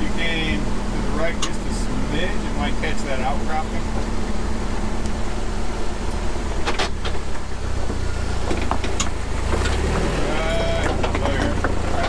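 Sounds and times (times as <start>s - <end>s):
truck engine running low: 0.0s - 12.0s
knocks and scrapes on rock: 10.7s - 12.0s.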